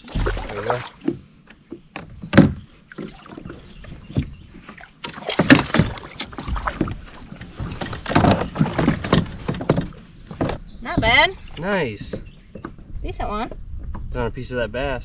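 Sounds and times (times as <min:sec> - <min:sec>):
water sloshing: 0:00.0 - 0:13.0
knocks on plastic kayak: 0:05.1 - 0:07.0.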